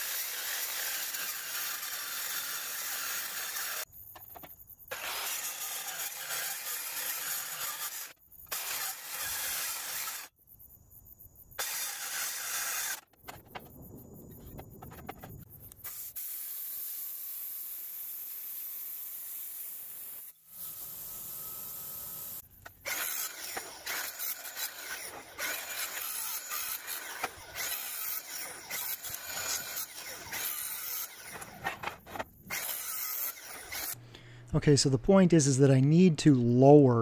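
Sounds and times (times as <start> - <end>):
angle grinder cutting steel: 0.0 - 3.9, 4.9 - 10.3, 11.6 - 13.1, 15.9 - 34.0
plasma cutter hissing: 15.8 - 22.4.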